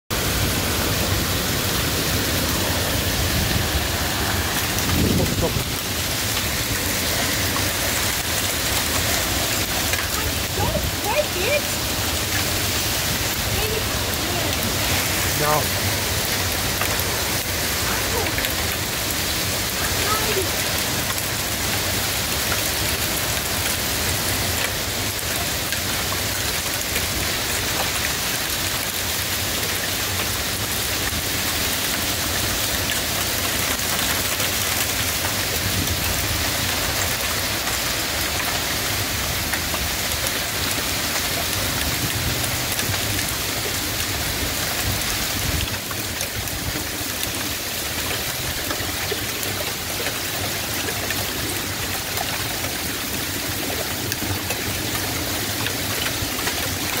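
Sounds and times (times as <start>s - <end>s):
heavy rain downpour: 0.1s - 57.0s
wind rumbling on microphone: 0.2s - 19.8s.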